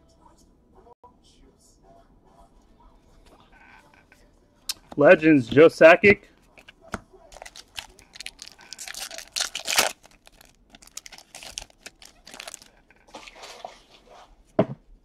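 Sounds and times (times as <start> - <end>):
cards rustling: 6.5 - 13.7
wrapper tearing and crinkling: 7.3 - 13.0.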